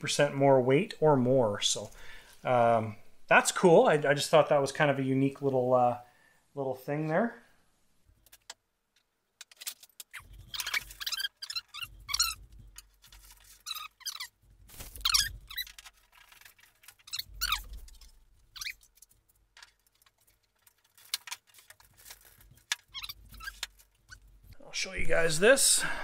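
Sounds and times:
metal tubes squeaking: 0:09.6 - 0:24.6.

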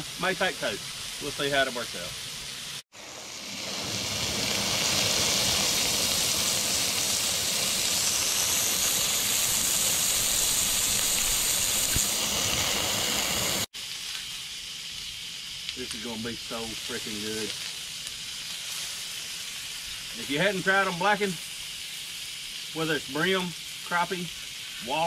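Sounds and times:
fish sizzling in hot oil: 0:00.0 - 0:25.0.

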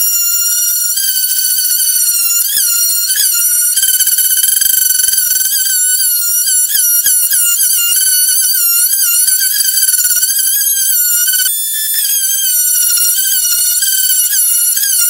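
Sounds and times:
oscillating saw cutting wood: 0:00.0 - 0:15.0.

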